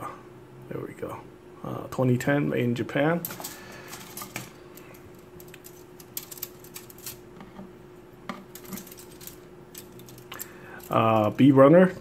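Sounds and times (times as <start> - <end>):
plastic pieces clicking: 3.3 - 7.2, 8.5 - 11.4.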